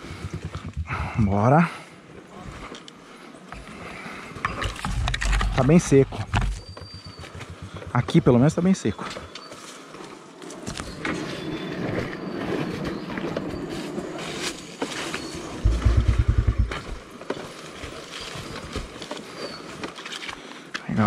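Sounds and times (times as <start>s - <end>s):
loud low rumble: 0.0s - 1.5s, 15.6s - 17.0s
knocks from dirt bike: 15.6s - 17.0s.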